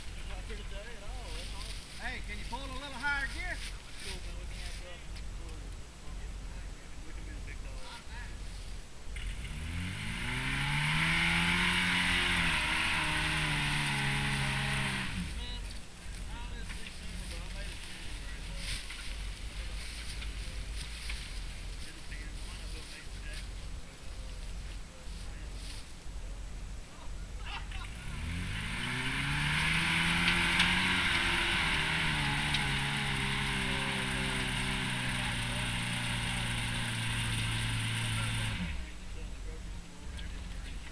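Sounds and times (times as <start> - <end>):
engine revving under load: 9.2 - 15.7, 27.8 - 39.1.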